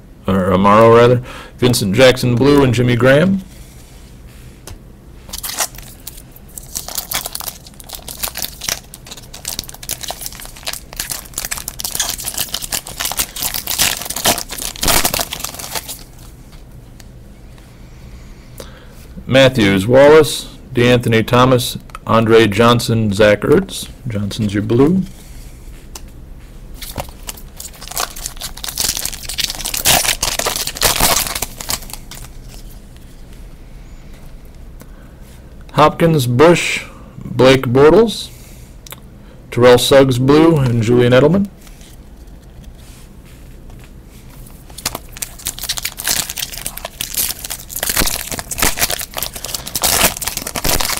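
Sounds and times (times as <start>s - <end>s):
foil wrapper crinkling and tearing: 5.3s - 16.3s, 26.8s - 32.8s, 44.4s - 50.9s.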